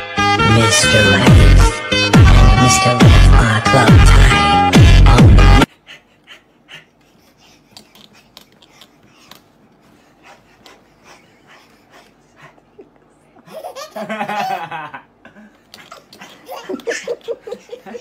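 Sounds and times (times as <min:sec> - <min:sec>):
baby laughing: 0:05.8 - 0:09.4, 0:10.2 - 0:15.0, 0:15.6 - 0:18.0
man laughing: 0:11.0 - 0:18.0.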